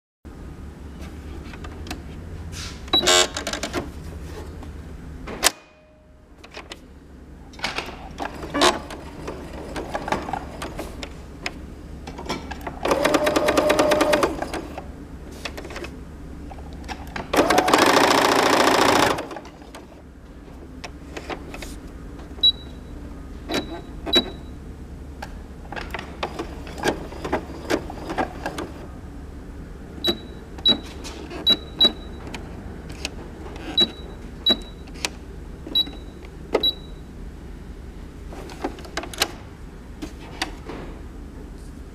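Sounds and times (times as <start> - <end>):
sewing machine stitching: 8.2 - 10.9, 12.8 - 14.9, 17.3 - 19.9.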